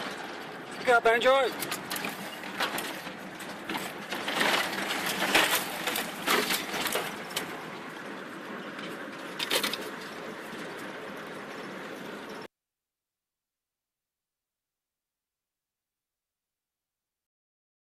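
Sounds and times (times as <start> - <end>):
vehicle running from inside cab: 0.0 - 12.5
branches scraping against vehicle: 0.9 - 11.7.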